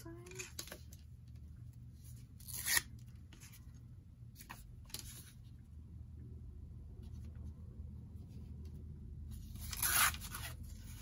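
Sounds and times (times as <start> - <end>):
paper tearing: 2.4 - 2.9, 9.5 - 11.0.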